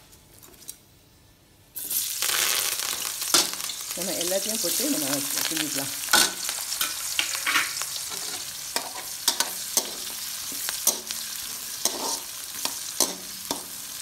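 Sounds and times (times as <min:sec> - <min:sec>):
onions sizzling in hot oil: 0:01.8 - 0:14.0
metal spatula scraping a wok: 0:06.1 - 0:13.8.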